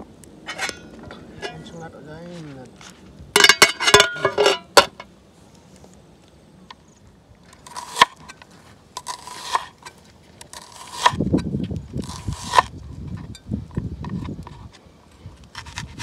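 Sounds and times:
knife slicing through onion: 9.0s - 9.7s, 10.5s - 11.2s, 12.0s - 12.7s.

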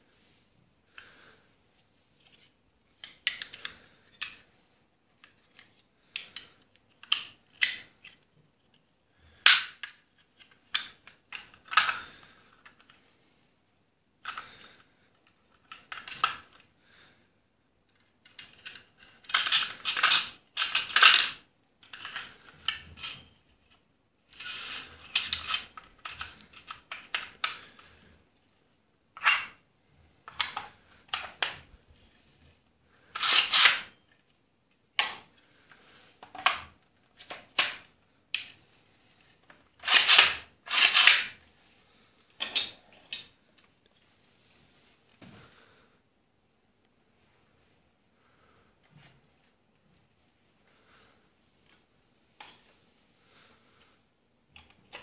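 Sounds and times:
wooden rifle parts clicking and knocking: 18.2s - 23.2s, 25.0s - 27.9s, 35.0s - 35.3s, 36.2s - 38.5s.

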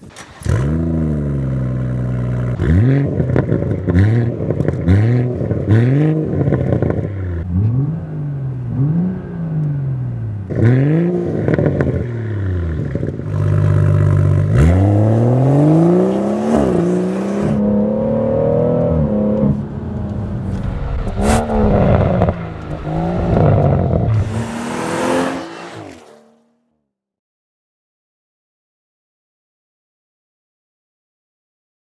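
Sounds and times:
exhaust crack: 0.0s - 7.9s, 11.3s - 26.3s
car engine revving: 0.0s - 26.5s
car accelerating: 0.1s - 26.5s.

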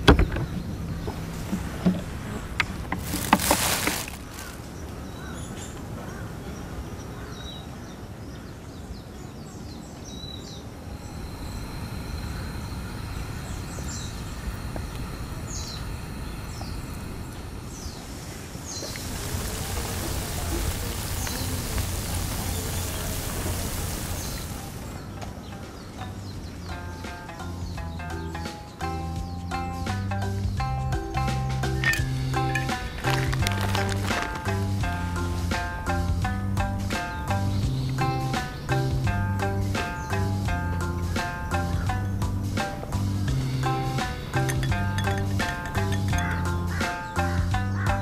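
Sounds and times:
birds chirping: 0.0s - 48.0s
dough sizzling in hot oil: 18.8s - 24.9s.

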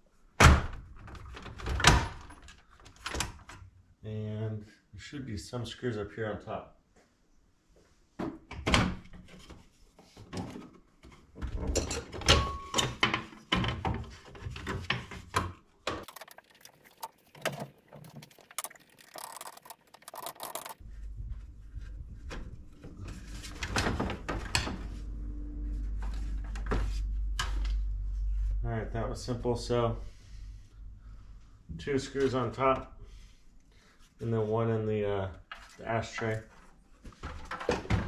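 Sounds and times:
screwdriver and plastic trim rattling: 19.0s - 20.8s
low steady hum: 20.8s - 33.7s.

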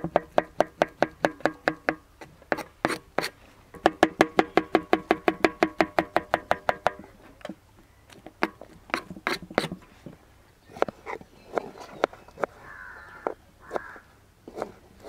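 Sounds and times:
knife chopping on plastic board: 13.6s - 14.7s.

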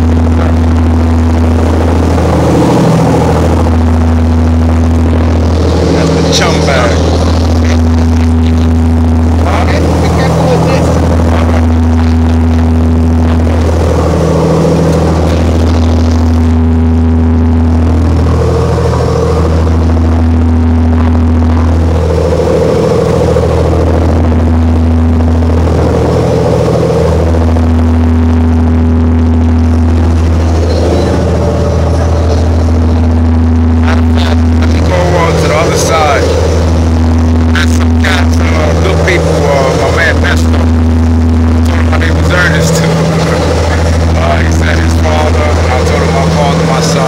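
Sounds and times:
boat engines droning: 0.0s - 47.0s
water rushing along hull: 0.0s - 47.0s.

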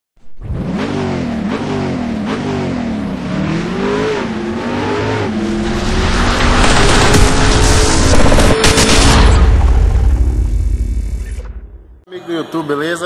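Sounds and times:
car engine revving: 0.3s - 11.0s.

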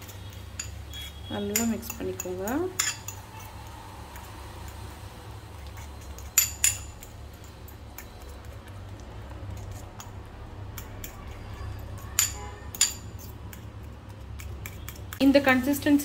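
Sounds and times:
fork clinking against bowl: 0.0s - 3.6s, 5.6s - 8.7s, 14.4s - 15.2s
fork scraping in bowl: 0.0s - 4.8s, 5.6s - 10.2s, 10.8s - 15.2s.

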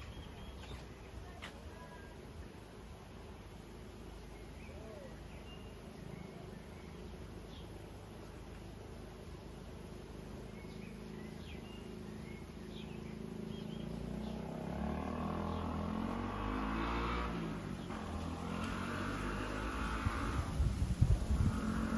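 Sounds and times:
vehicle engine approaching: 10.8s - 21.9s.

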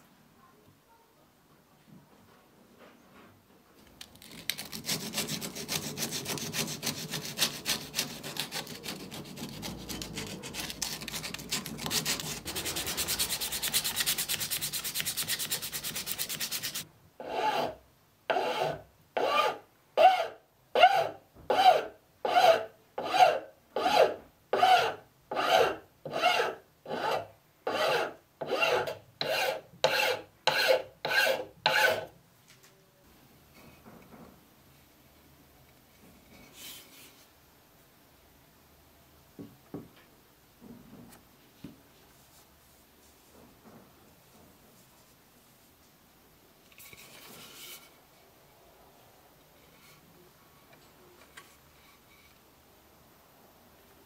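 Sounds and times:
slow rasping strokes: 4.2s - 20.2s, 22.3s - 32.1s
hand scrubbing an axe: 4.3s - 16.8s.

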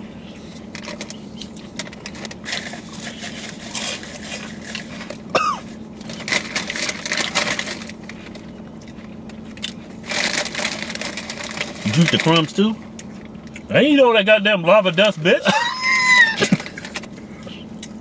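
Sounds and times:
chewing crunchy chips: 0.6s - 13.7s
plastic bag crinkling: 6.0s - 8.4s, 10.0s - 12.5s.

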